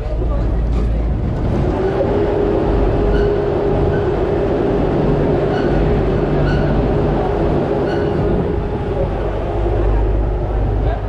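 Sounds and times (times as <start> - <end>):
tram rolling rumble: 0.0 - 11.0
short high squeaks: 3.0 - 4.2, 5.4 - 6.9, 7.8 - 8.3.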